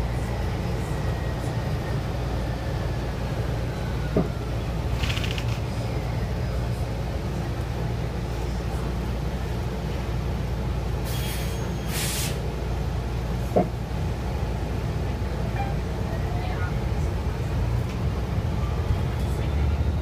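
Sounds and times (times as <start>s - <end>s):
bus engine rumble: 0.0s - 20.0s
compressed air hisses: 11.1s - 12.4s.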